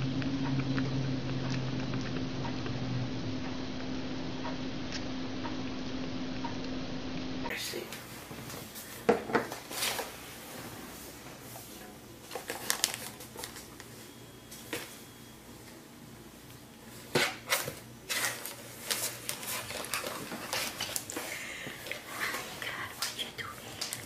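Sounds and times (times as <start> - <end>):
plastic film crinkling: 12.3 - 14.0, 17.6 - 21.2, 21.9 - 24.0.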